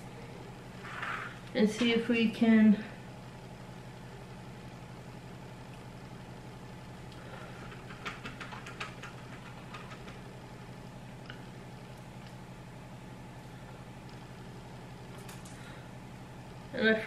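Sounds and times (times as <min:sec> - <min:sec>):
appliance humming: 0:00.0 - 0:17.0.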